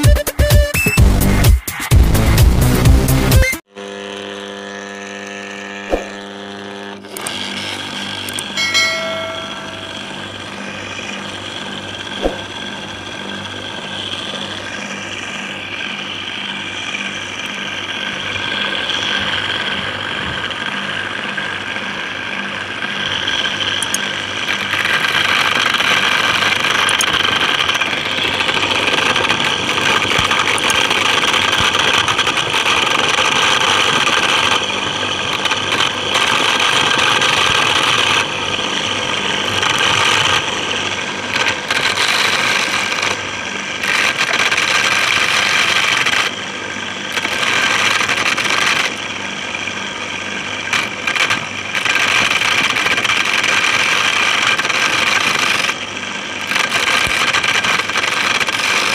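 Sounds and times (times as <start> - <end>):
electric motor running: 3.7 - 58.9
corn sheller rattling clatter: 23.8 - 38.3, 41.2 - 43.2, 43.8 - 46.4, 47.1 - 49.0, 50.7 - 55.8, 56.4 - 58.9.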